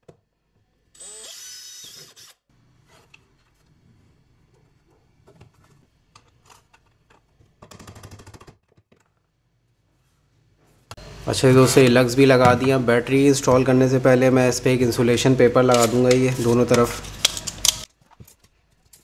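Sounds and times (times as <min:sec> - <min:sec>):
cordless drill boring plastic: 0:01.0 - 0:02.4
faint handling noises: 0:15.6 - 0:19.0.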